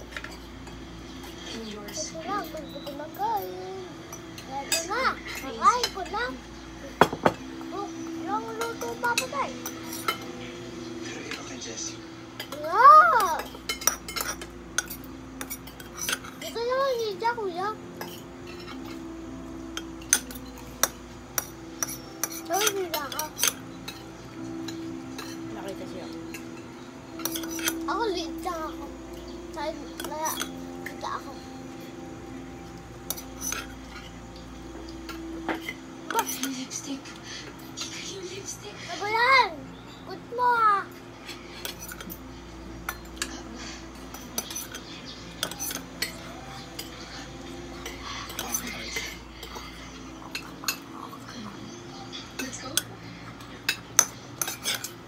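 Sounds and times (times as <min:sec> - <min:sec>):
steady low hum: 0:00.0 - 0:55.0
cutlery clinking on plates: 0:07.0 - 0:07.5, 0:12.4 - 0:16.6, 0:19.8 - 0:25.5, 0:26.3 - 0:27.9, 0:33.0 - 0:34.2, 0:34.9 - 0:38.1, 0:41.2 - 0:51.3, 0:52.2 - 0:55.0.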